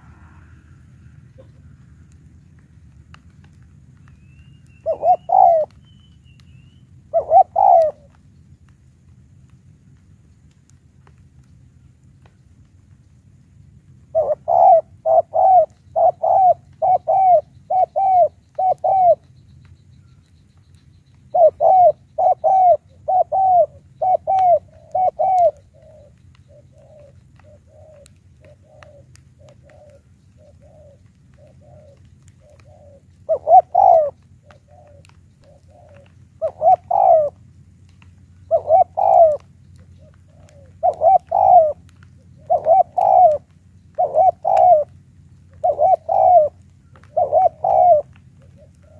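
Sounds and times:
dove cooing: 0:04.7 - 0:05.9, 0:07.0 - 0:08.2, 0:14.1 - 0:19.4, 0:21.3 - 0:48.9.

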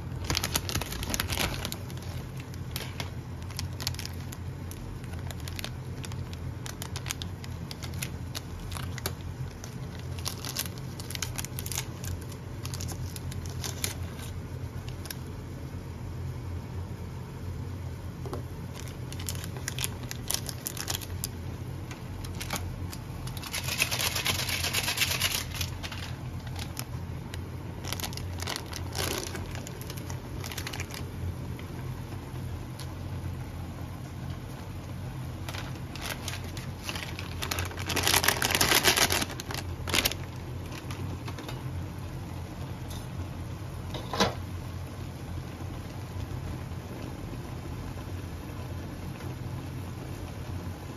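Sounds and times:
plastic sachets crinkling and tearing: 0:00.0 - 0:15.3, 0:18.6 - 0:33.0, 0:35.4 - 0:41.7
steady low hum: 0:00.0 - 0:50.9.

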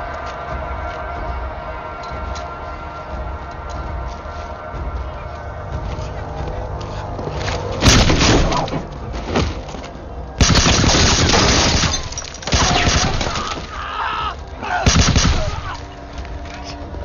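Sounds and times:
automatic rifle fire: 0:10.4 - 0:12.0, 0:14.9 - 0:15.6.

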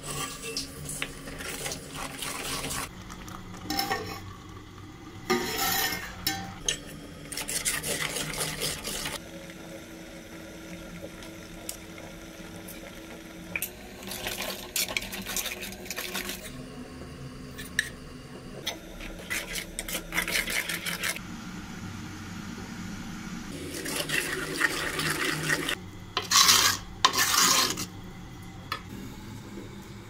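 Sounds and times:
ladle scraping clay pot: 0:00.0 - 0:04.4, 0:05.3 - 0:09.2, 0:14.1 - 0:16.5, 0:18.6 - 0:21.2, 0:23.7 - 0:28.0.

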